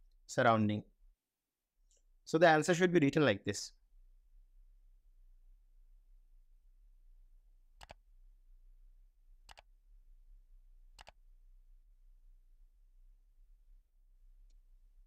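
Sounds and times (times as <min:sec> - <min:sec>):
faint mouse clicks: 0:07.8 - 0:08.0, 0:11.0 - 0:11.2.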